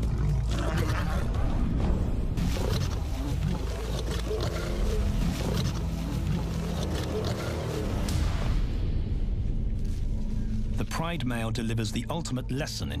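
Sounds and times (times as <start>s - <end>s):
lions growling and roaring: 0.0s - 1.8s, 2.4s - 8.5s.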